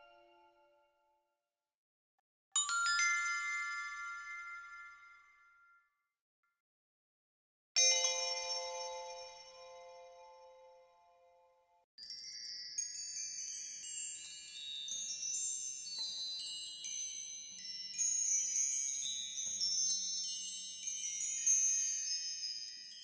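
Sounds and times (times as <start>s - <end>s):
high-pitched chimes tinkling: 12.0s - 23.0s.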